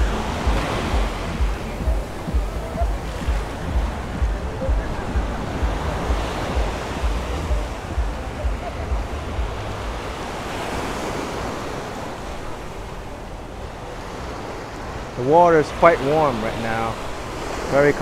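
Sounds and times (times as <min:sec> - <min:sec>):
wind rumbling on microphone: 0:00.0 - 0:15.2
small waves breaking on sand: 0:00.0 - 0:18.0.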